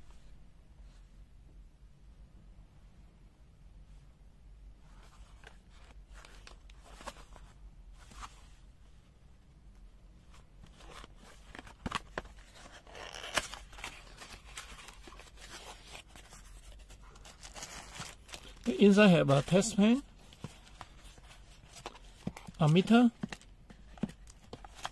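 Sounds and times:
packaging rustling and tearing: 10.7s - 24.9s.

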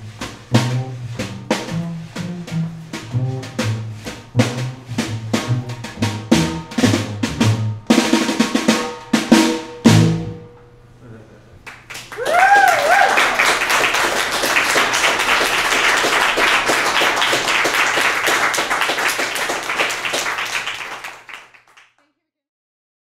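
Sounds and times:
audience clapping: 11.6s - 22.1s
audience cheering: 11.7s - 21.6s.

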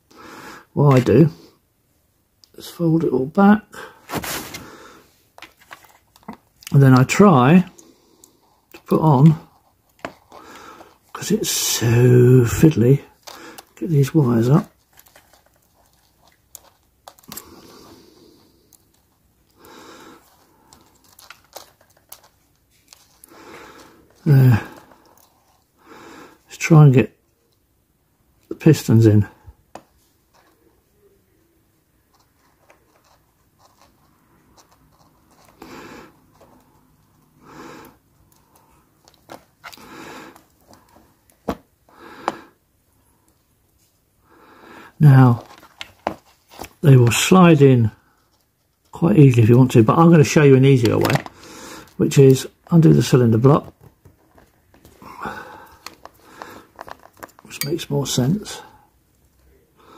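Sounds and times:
soft rustles: 4.0s - 6.6s, 12.4s - 19.5s.

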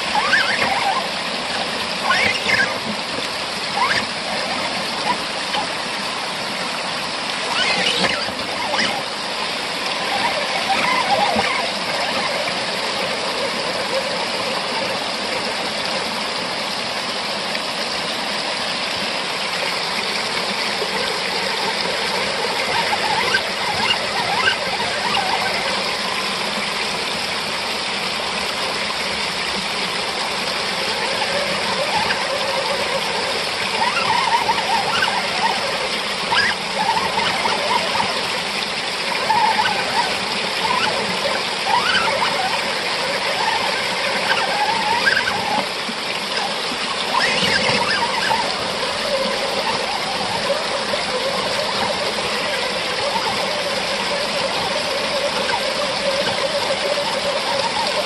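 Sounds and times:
toy car drivetrain whining: 0.0s - 15.4s, 19.6s - 58.0s
water rushing over rocks: 0.0s - 58.0s.

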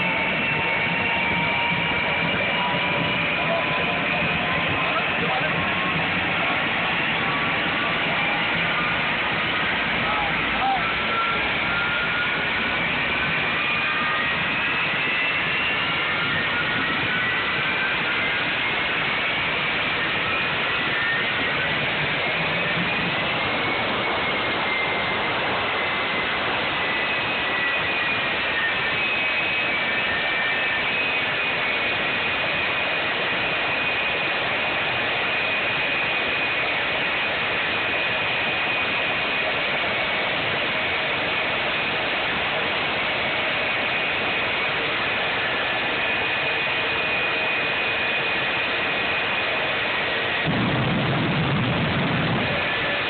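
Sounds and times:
low rumble of exhaust flame: 0.0s - 35.2s, 47.6s - 53.0s
jet engine with turbine whine: 0.0s - 53.0s.

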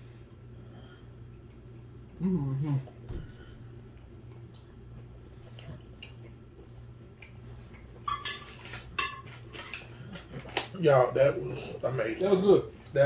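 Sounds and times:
person chewing: 3.6s - 8.0s.

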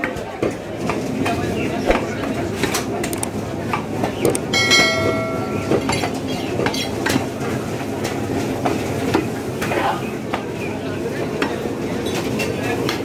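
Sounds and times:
busy market din: 0.0s - 13.0s.

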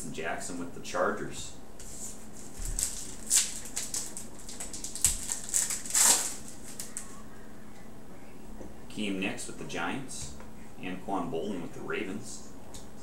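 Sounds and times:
plastic wrapper crinkling: 2.5s - 7.2s.

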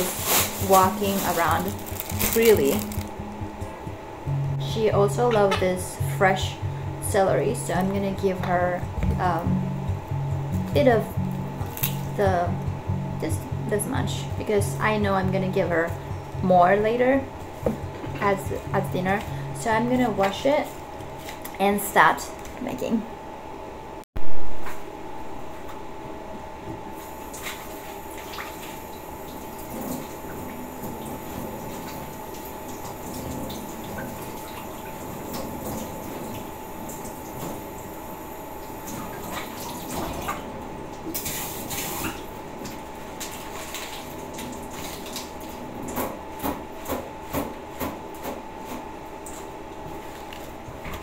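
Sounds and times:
water splashing on leaves: 0.0s - 3.1s, 11.6s - 12.1s, 43.2s - 45.4s.

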